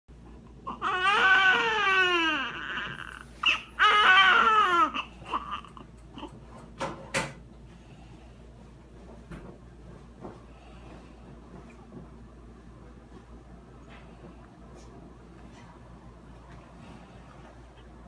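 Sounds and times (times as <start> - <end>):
newborn baby crying: 0.6 - 6.4.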